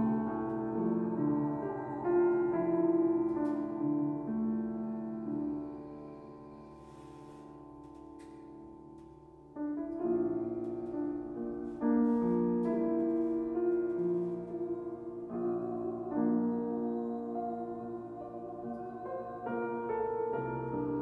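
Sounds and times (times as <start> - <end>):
piano playing slow chords: 0.0 - 21.0.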